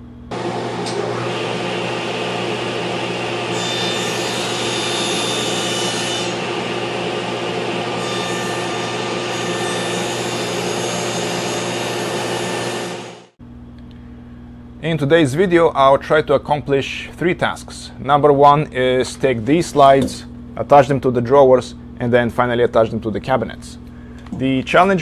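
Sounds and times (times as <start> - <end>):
power tool motor hum: 0.3 - 13.3.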